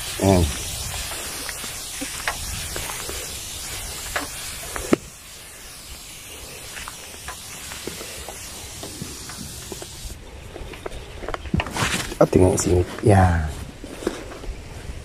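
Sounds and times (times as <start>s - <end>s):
spray hissing from nozzle: 0.0s - 10.2s
sprayer clicks: 3.9s - 5.1s.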